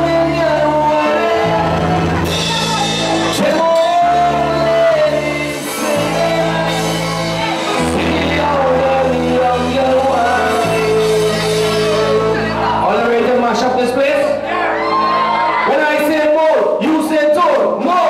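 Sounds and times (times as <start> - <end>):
man singing into microphone: 0.0 - 14.5
keyboard band playing: 0.0 - 18.0.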